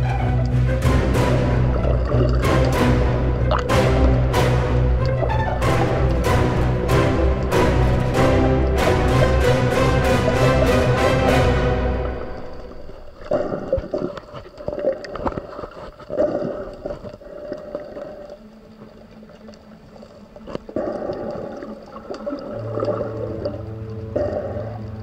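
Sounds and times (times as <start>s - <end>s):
music: 0.0s - 13.3s, 22.4s - 25.0s
muffled underwater sloshing: 0.0s - 25.0s.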